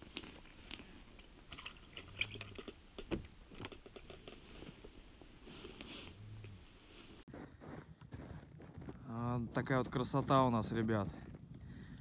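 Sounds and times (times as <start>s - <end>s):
clicks and rustles of handling gear: 3.0s - 5.0s.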